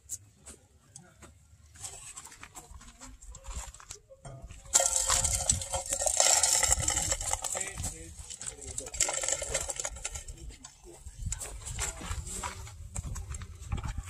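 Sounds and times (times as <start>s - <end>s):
wire-mesh trap rattling: 4.7s - 10.4s.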